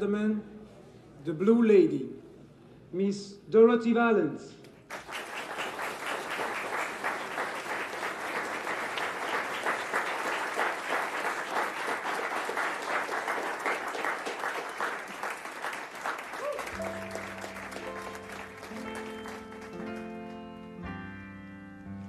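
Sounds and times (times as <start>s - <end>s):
audience applauding: 4.9s - 20.7s.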